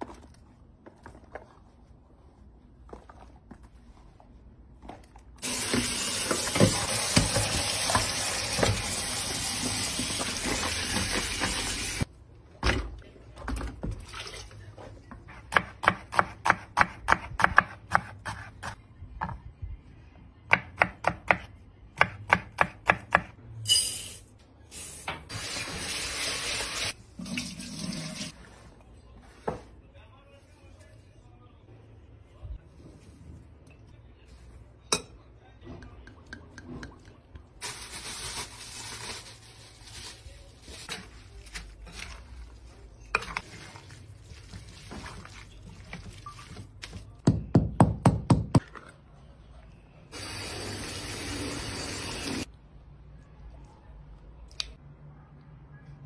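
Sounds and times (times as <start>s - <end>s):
splashes and knocks of washing vegetables: 5.4s - 12.0s, 43.2s - 47.4s.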